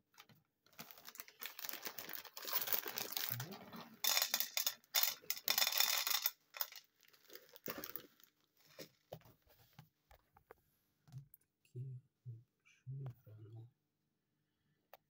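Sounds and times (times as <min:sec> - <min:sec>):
foil bag crinkling: 0:00.7 - 0:03.6, 0:04.3 - 0:09.0
kibble rattling into plastic bowl: 0:00.9 - 0:08.9.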